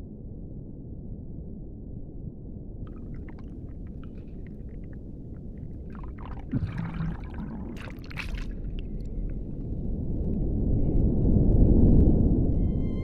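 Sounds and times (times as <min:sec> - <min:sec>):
bubble clicks: 0:02.9 - 0:09.7
water rushing from strokes: 0:02.9 - 0:09.7
muffled underwater rumble: 0:02.9 - 0:13.0.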